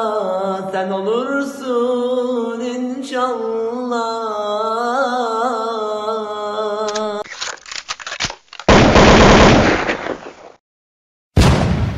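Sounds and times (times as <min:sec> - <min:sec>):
man singing unaccompanied: 0:00.0 - 0:07.2
clicks and rustling: 0:06.9 - 0:08.7.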